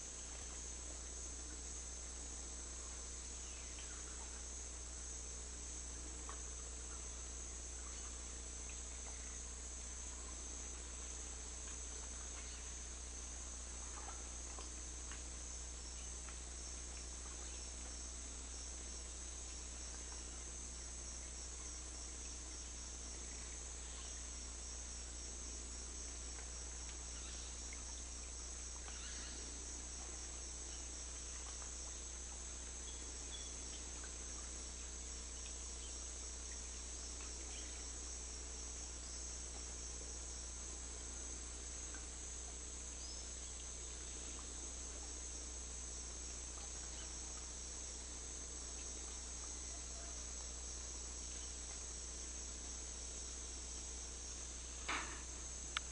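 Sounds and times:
crickets trilling: 0:00.0 - 0:55.9
faint insect chirps: 0:00.0 - 0:55.9
low steady rumble: 0:00.0 - 0:55.9.

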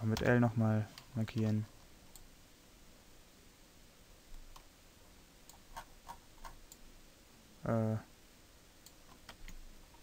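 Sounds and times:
keyboard and mouse clicks: 0:05.5 - 0:06.8, 0:08.8 - 0:09.6.

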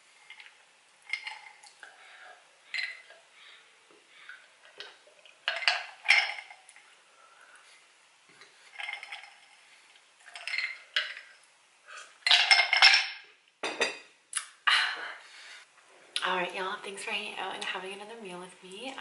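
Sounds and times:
dishes and cutlery clinking: 0:05.5 - 0:06.7, 0:10.3 - 0:11.4, 0:12.0 - 0:14.1
glass set down: 0:12.3 - 0:14.1.

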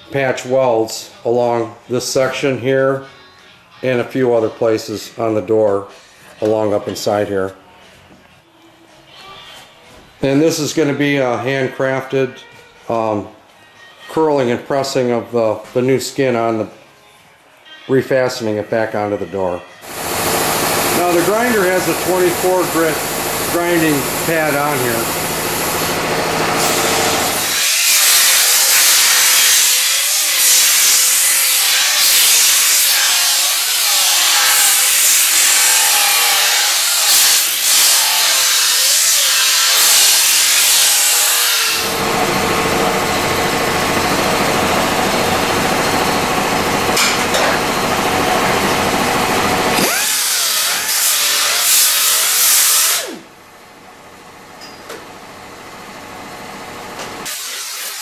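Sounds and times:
air disc grinder grinding steel: 0:19.8 - 0:53.2, 0:57.2 - 0:58.0.

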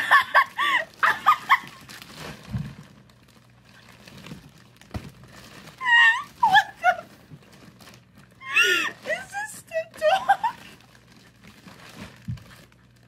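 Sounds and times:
woman squealing with laughter: 0:00.0 - 0:01.8, 0:05.8 - 0:07.1, 0:08.4 - 0:09.0, 0:10.0 - 0:10.7
plastic bag crinkling: 0:00.0 - 0:13.0.

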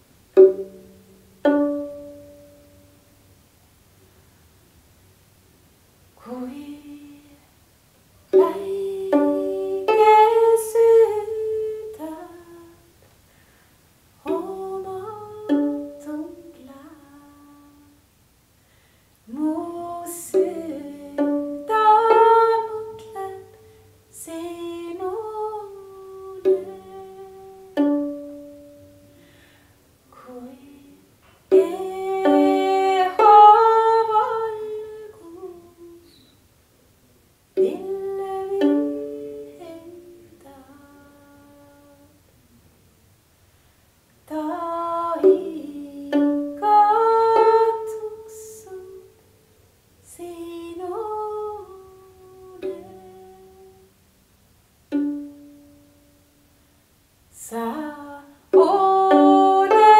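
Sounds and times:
small stringed folk instrument: 0:00.0 - 0:03.4, 0:08.1 - 0:18.1, 0:19.1 - 0:43.0, 0:43.6 - 0:59.9
woman singing a folk song: 0:06.2 - 0:07.6, 0:08.3 - 0:13.1, 0:14.2 - 0:18.1, 0:19.2 - 0:36.4, 0:37.6 - 0:42.2, 0:44.2 - 0:49.2, 0:50.0 - 0:54.0, 0:57.3 - 0:59.9.

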